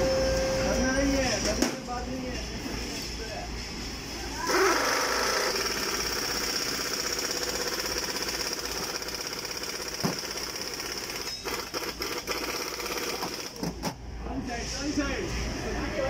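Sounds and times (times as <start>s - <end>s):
machine rattle and whine: 4.5s - 14.1s.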